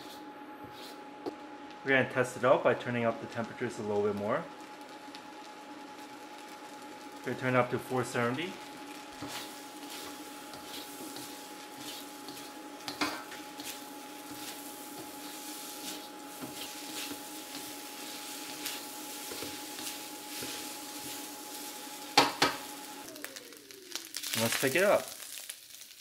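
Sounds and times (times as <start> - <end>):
spatula scraping and tapping wok: 0.0 - 1.5, 9.1 - 22.8
thin electronic whine: 0.0 - 25.3
rice sizzling: 0.0 - 26.0.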